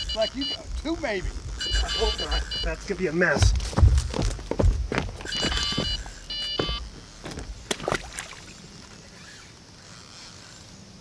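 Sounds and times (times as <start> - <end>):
bite alarm beeping rapidly: 0.0 - 3.6, 4.8 - 7.4.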